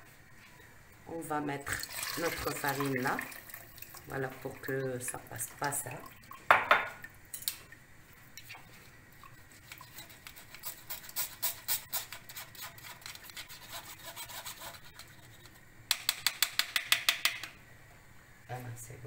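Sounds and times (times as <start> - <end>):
spoon scraping wire-mesh sieve: 9.5 - 15.6.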